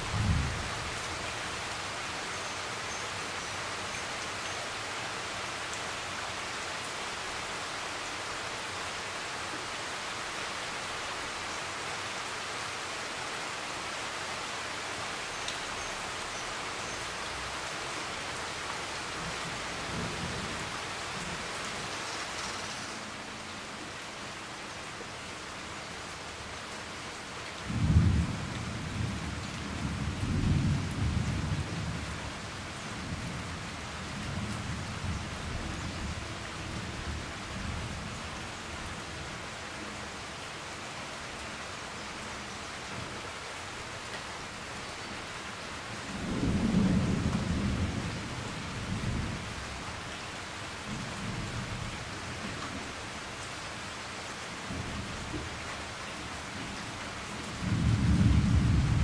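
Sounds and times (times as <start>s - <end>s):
rain hiss: 0.0s - 59.0s.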